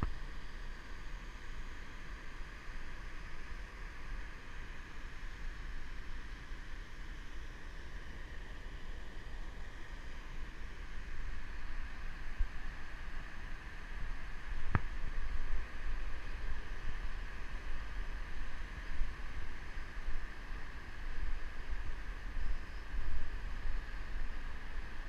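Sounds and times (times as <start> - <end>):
wind rumble on microphone: 11.1 - 25.0.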